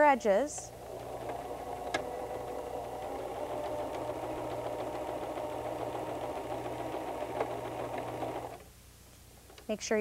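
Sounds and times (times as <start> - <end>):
sewing machine motor whirring: 0.6 - 8.6.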